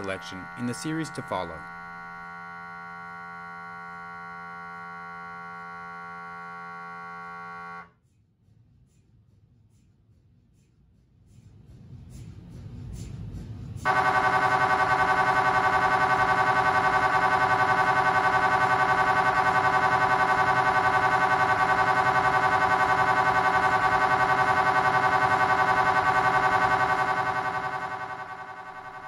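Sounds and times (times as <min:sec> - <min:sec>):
mri scanner pulsing buzz: 0:00.0 - 0:07.9, 0:13.8 - 0:29.0.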